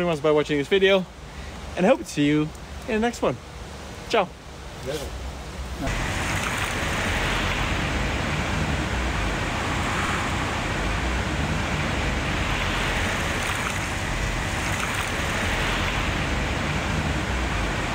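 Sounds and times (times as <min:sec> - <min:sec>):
steady rushing noise: 0:03.6 - 0:17.9
low rumble: 0:05.6 - 0:17.9.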